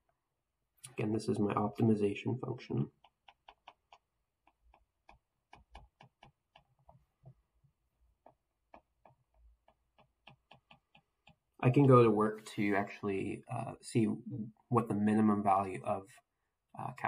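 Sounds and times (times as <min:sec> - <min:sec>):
stylus tapping on glass screen: 0:02.9 - 0:11.6.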